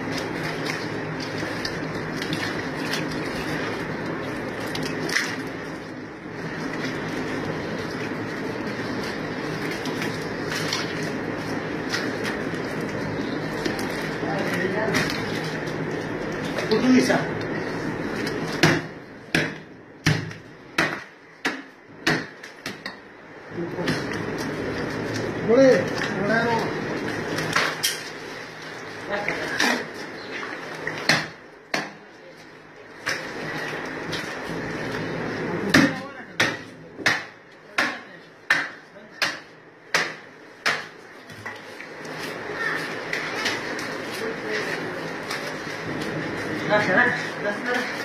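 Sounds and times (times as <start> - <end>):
cleaver chopping meat: 18.6 - 22.9, 35.7 - 41.0.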